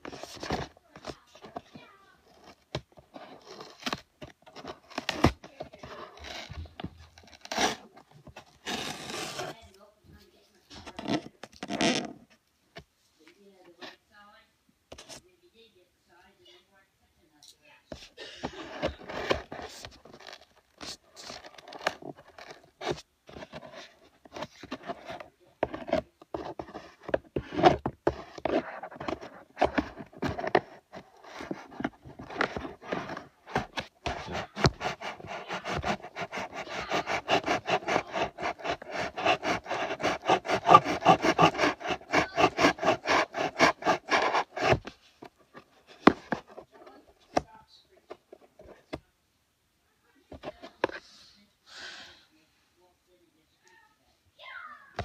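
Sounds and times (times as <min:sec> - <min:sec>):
scratching strokes on a surface: 0:18.4 - 0:47.0.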